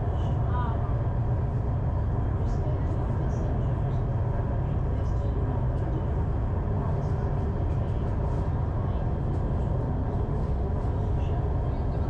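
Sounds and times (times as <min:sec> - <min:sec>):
metro train rumble: 0:00.0 - 0:12.0.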